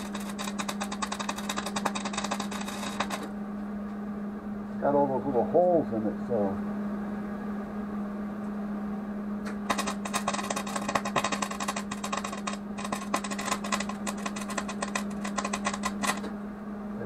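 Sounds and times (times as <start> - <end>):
welding arc crackling: 0.0 - 3.3, 9.6 - 16.3
steady low hum: 0.0 - 17.0.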